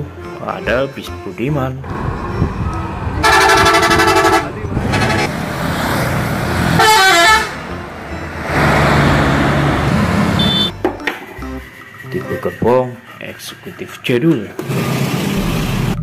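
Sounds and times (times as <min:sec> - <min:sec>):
road and traffic noise: 0:01.8 - 0:16.0
multi-tone musical horn: 0:03.2 - 0:05.3, 0:06.8 - 0:07.8, 0:10.3 - 0:10.8.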